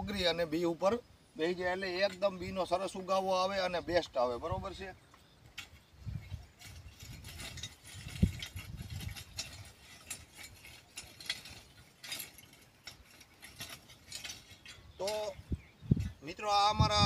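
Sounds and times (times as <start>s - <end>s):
hand rake scratching dry soil: 1.4s - 3.8s, 4.5s - 17.0s.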